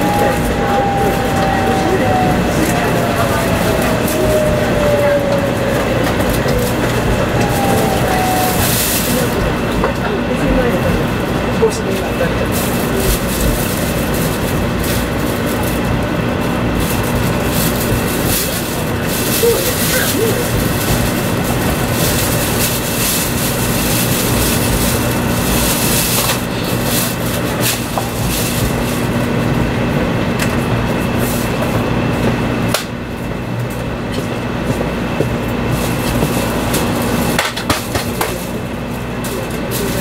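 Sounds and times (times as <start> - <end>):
train running rumble and hiss: 0.0 - 40.0.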